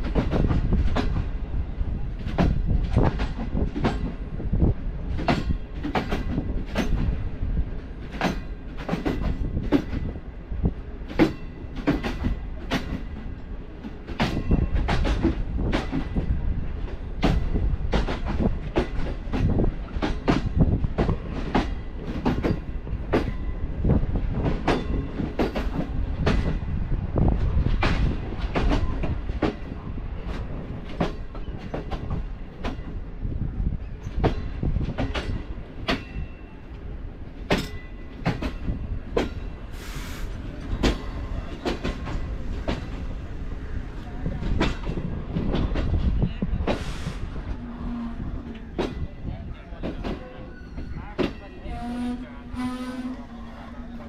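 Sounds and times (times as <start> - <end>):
train coach rumbling on rails: 0.0 - 54.0
wheels clicking over rail joints: 2.1 - 33.1, 33.8 - 39.7.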